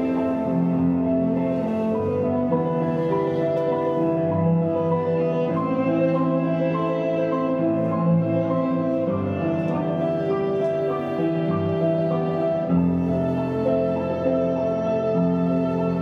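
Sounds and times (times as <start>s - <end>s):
slow instrumental music: 0.0s - 16.0s.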